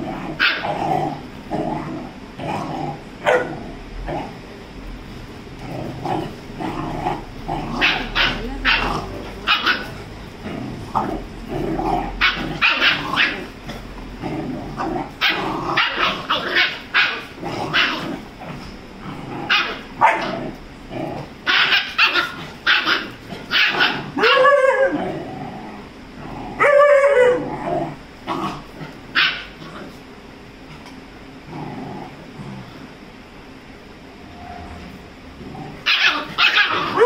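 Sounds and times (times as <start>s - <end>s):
puppy yelping whines: 7.8s - 10.0s, 12.2s - 13.5s, 15.2s - 18.1s, 21.5s - 25.0s, 35.8s - 37.0s
puppies yipping and barking: 7.8s - 10.1s, 12.2s - 13.5s, 15.2s - 18.0s, 21.4s - 24.9s, 35.8s - 37.0s.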